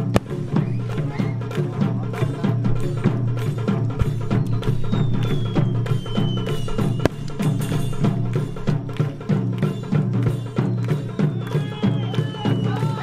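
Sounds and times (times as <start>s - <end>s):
sharp crack: 0.0s - 10.4s
music with percussive beat: 0.0s - 13.0s
falling whistle: 0.5s - 1.4s, 4.0s - 8.2s, 10.3s - 13.0s.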